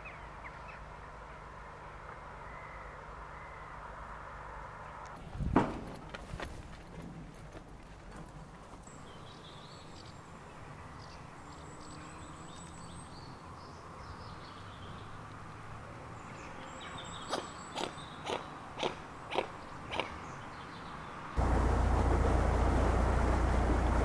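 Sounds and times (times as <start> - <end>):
low hum: 21.4 - 24.0.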